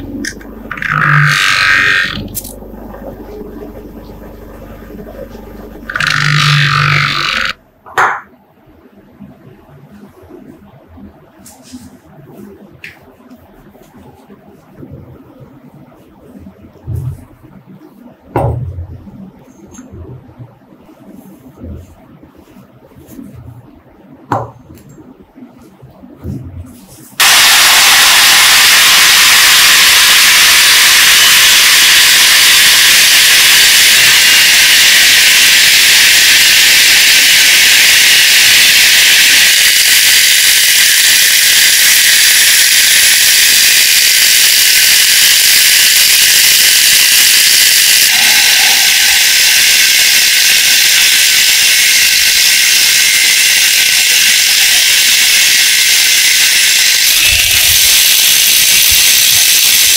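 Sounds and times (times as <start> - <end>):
angle grinder grinding metal spring: 0.2 - 2.6, 5.9 - 7.6, 27.2 - 59.9.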